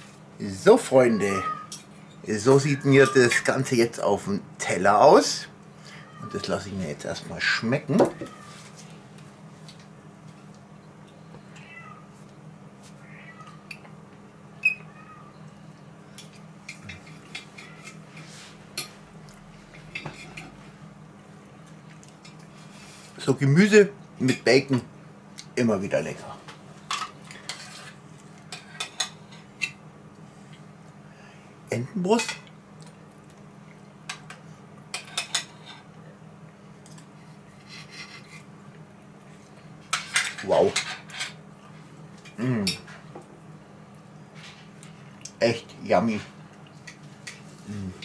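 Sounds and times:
knife scraping across plate: 27.3 - 29.0, 37.6 - 38.5.

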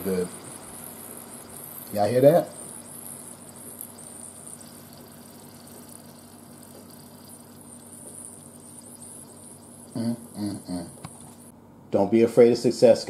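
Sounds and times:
chicken sizzling in a pot: 0.0 - 11.5
low steady hum: 0.0 - 13.0.

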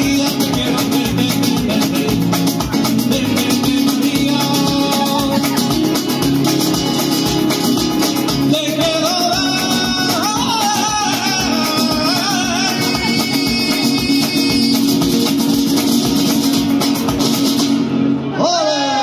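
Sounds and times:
person singing: 0.0 - 6.2, 8.4 - 15.4
acoustic guitars strumming: 0.0 - 19.0.

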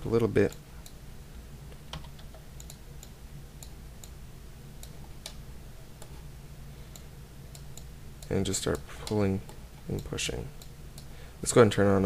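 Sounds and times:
steady low hum: 0.0 - 12.0
computer keyboard and mouse clicks: 1.7 - 4.2.

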